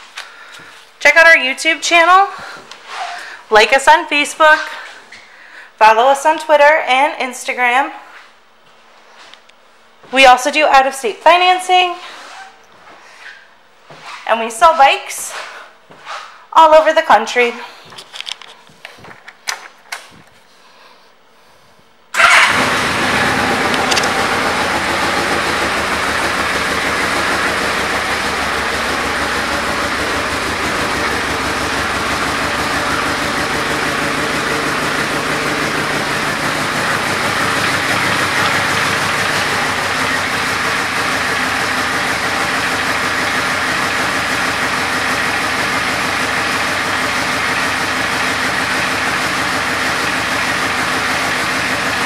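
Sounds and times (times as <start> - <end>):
motorcycle engine idling: 22.2 - 52.0.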